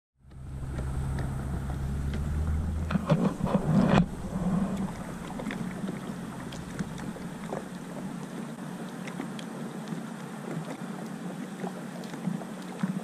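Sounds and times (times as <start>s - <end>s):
water drips and clicks: 0.2s - 8.5s
knocks and splashes: 0.2s - 8.6s
microphone rumble: 0.2s - 8.6s
water washing against kayak hull: 0.2s - 13.0s.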